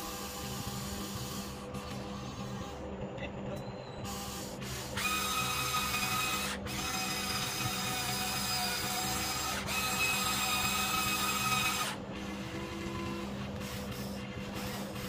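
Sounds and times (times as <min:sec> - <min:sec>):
electric motors and gears whining: 0:00.0 - 0:15.0.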